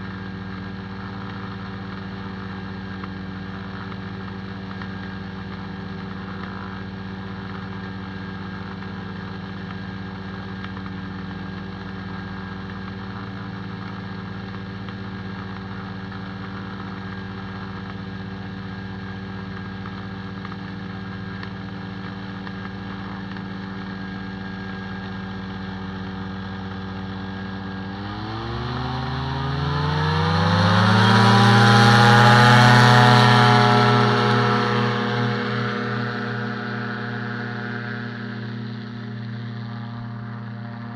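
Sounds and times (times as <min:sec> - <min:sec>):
microlight engine revving up: 0:27.6 - 0:40.9.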